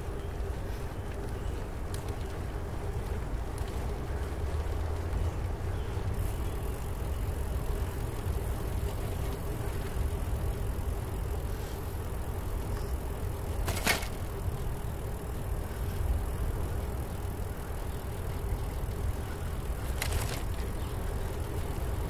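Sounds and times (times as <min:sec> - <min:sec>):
bicycle tyres rumbling on trail: 0:00.0 - 0:22.0
sharp rattle: 0:12.8 - 0:14.4.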